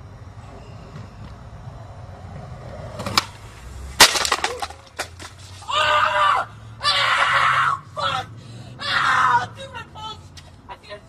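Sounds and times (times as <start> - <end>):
loud crash with cracking: 4.0 - 5.7.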